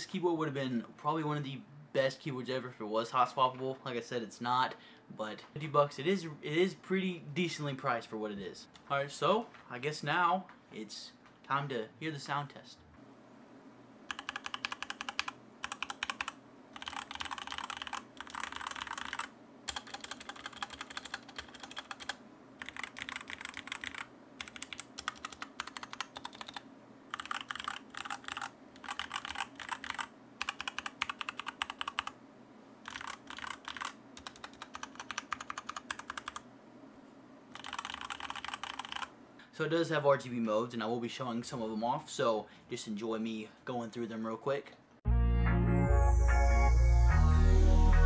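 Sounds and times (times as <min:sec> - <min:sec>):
mechanical keyboard typing: 0:14.1 - 0:32.2, 0:32.8 - 0:36.4, 0:37.5 - 0:39.1.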